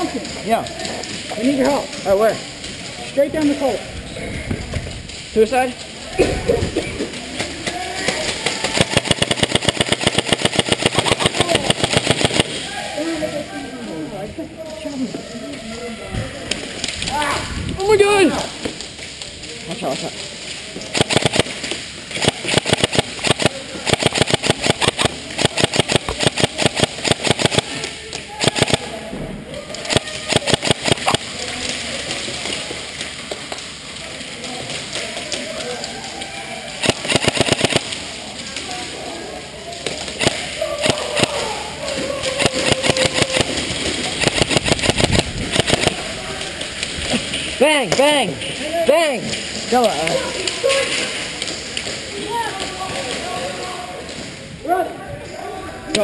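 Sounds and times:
airsoft rifle full-auto burst: 0:08.6 - 0:12.6, 0:20.9 - 0:28.9, 0:29.9 - 0:31.3, 0:36.8 - 0:38.0, 0:40.2 - 0:41.5, 0:42.2 - 0:46.0.

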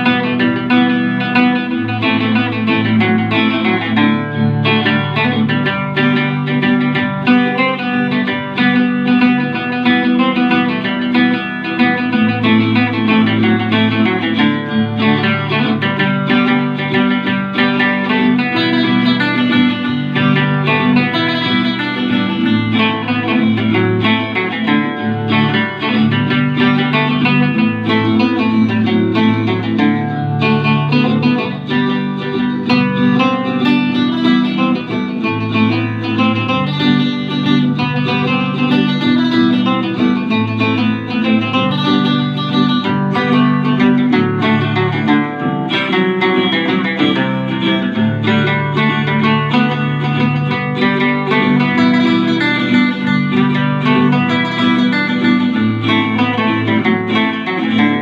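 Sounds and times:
acoustic guitar playing: 0:00.0 - 0:58.0.

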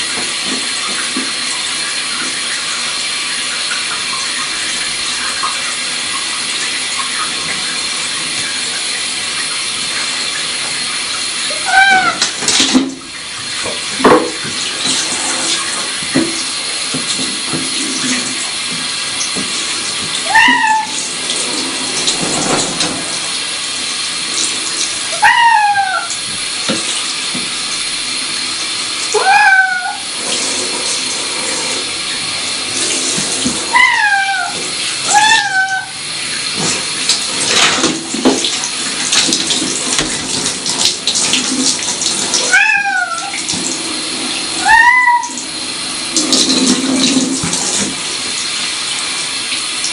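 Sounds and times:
shower spray hissing: 0:00.0 - 0:49.9
cat meowing: 0:11.5 - 0:12.2, 0:20.2 - 0:21.0, 0:25.1 - 0:26.2, 0:29.1 - 0:30.1, 0:33.7 - 0:36.0, 0:42.5 - 0:43.4, 0:44.6 - 0:45.4.

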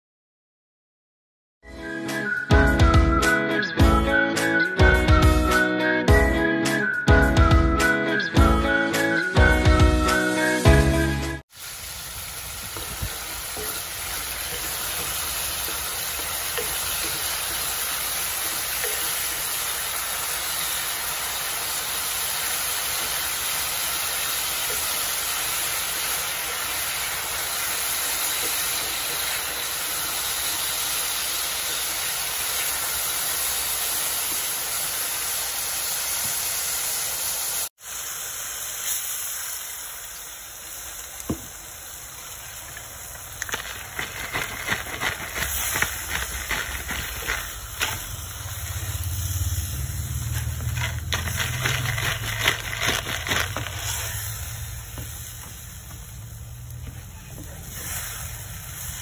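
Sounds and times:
food sizzling in a pot: 0:08.2 - 0:59.0.

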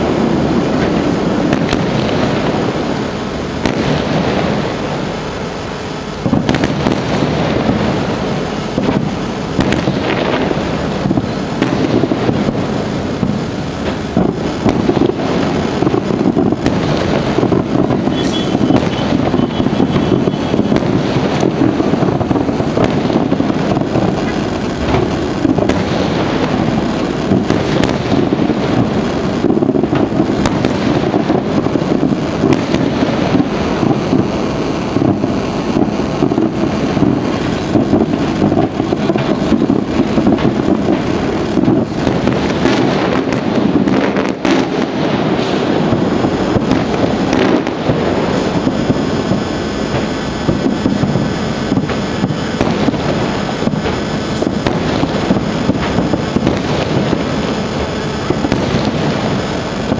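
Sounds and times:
fireworks bangs and crackle: 0:00.0 - 0:59.9.

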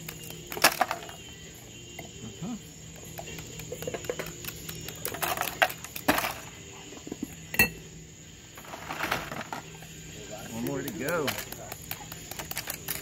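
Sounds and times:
ice clinking in glasses: 0:07.5 - 0:07.8.

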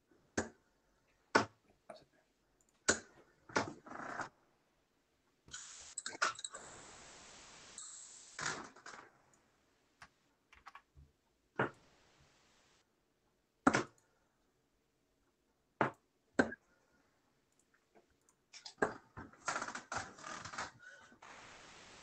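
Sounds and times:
steady hiss: 0:05.5 - 0:08.9, 0:11.8 - 0:12.8, 0:21.2 - 0:22.0.

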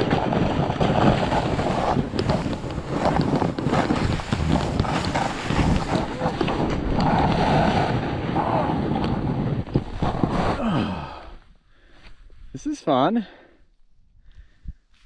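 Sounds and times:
snowboard scraping through snow: 0:00.0 - 0:11.0
wind on microphone: 0:00.0 - 0:11.5.

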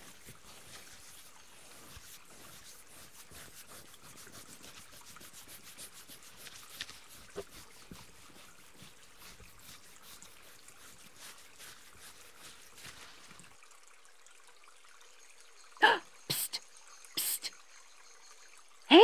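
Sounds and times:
hair scratching and rubbing: 0:00.0 - 0:13.4
stream water trickling: 0:00.0 - 0:19.0.

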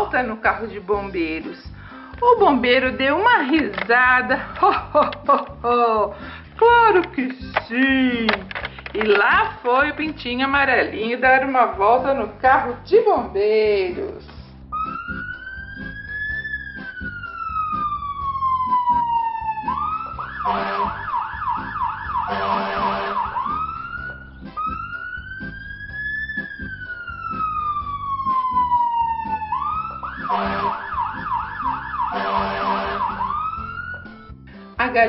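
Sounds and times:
toy electronic siren wailing: 0:14.8 - 0:34.2.

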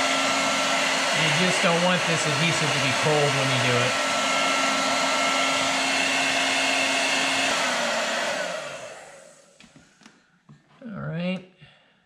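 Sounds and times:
hair dryer blowing: 0:00.0 - 0:09.9.

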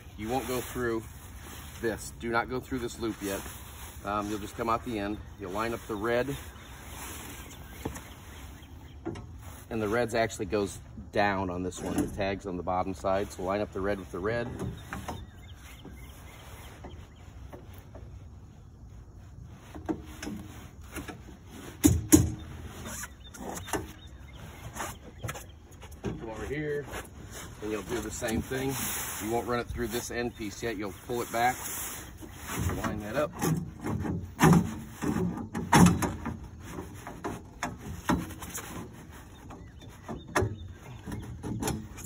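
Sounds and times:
fabric rustling and scraping: 0:00.0 - 0:10.7, 0:13.0 - 0:35.4.

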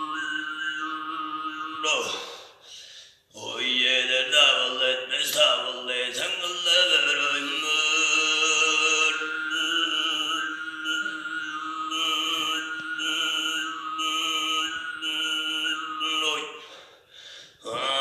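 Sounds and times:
throat singing: 0:00.0 - 0:02.6, 0:06.2 - 0:16.8.

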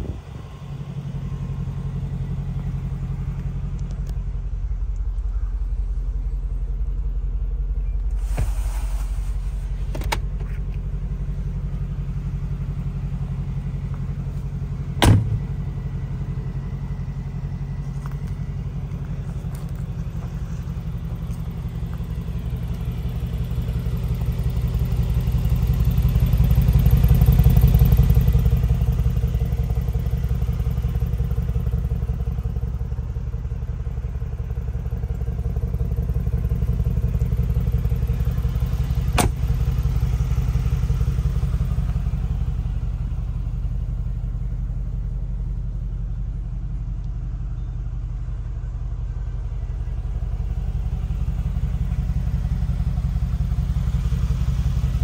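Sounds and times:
car engine idling: 0:00.0 - 0:55.0
car door shutting thud: 0:09.8 - 0:10.7, 0:15.0 - 0:15.7, 0:39.1 - 0:39.5.

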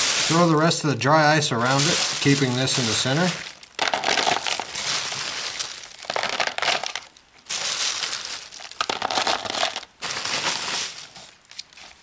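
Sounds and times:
pellets clattering on plastic: 0:00.0 - 0:11.4
plastic bag rustling: 0:00.0 - 0:12.0.

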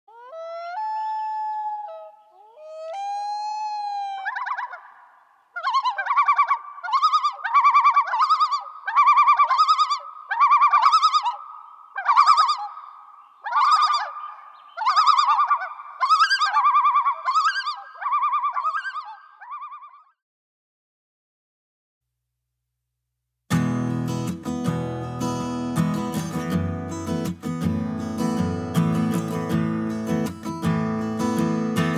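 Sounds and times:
loon tremolo calls: 0:00.1 - 0:20.1.

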